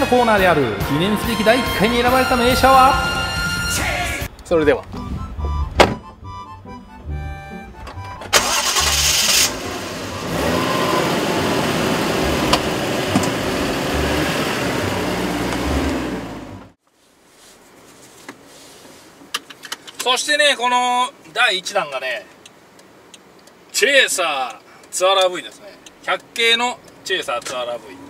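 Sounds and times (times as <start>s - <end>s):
background music: 0.0s - 4.3s, 5.0s - 9.9s
car engine starting and running: 7.3s - 16.8s.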